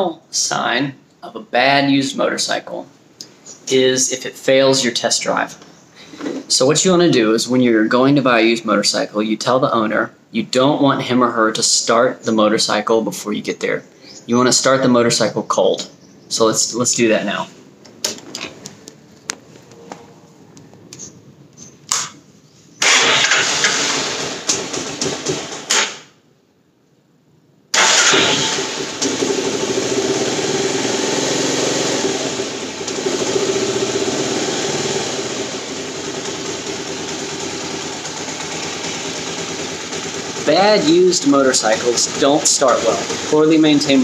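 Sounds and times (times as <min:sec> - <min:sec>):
loud engine burst: 0:22.8 - 0:26.1, 0:27.8 - 0:43.6
motorcycle engine idling: 0:32.0 - 0:44.0.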